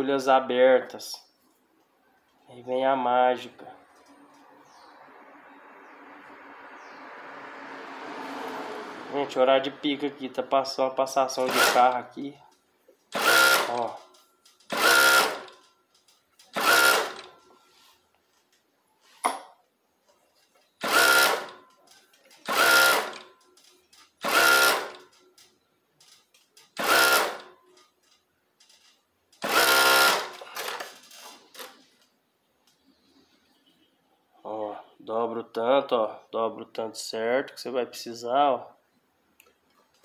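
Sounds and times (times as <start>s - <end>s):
sewing machine running: 11.4s - 12.0s, 13.2s - 14.0s, 14.7s - 15.6s, 16.4s - 17.4s, 20.8s - 21.6s, 22.4s - 23.3s, 24.2s - 25.0s, 26.7s - 27.5s, 29.4s - 30.9s.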